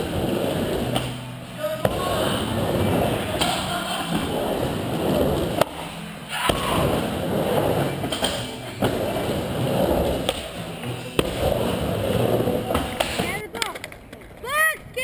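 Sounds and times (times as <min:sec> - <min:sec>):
skateboard wheels rolling on wood: 0:00.0 - 0:15.0
skateboard clack: 0:12.3 - 0:14.7.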